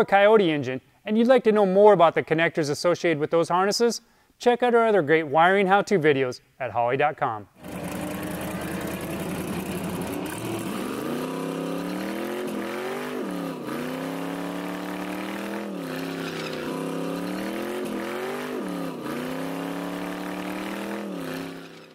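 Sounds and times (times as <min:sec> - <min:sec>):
drag car engine revving: 0:07.6 - 0:21.9.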